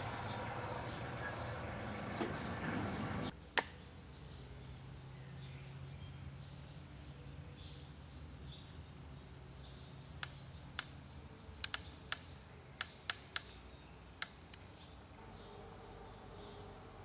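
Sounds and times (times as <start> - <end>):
sharp irregular clicks: 11.6 - 13.5
faint low hum: 13.5 - 17.0.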